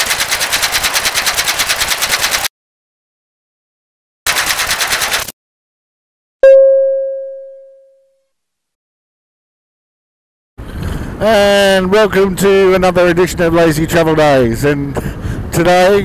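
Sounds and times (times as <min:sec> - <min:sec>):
rapid clatter of clicks: 0:00.0 - 0:02.5, 0:04.3 - 0:05.4
bell-like ding: 0:06.4 - 0:08.3.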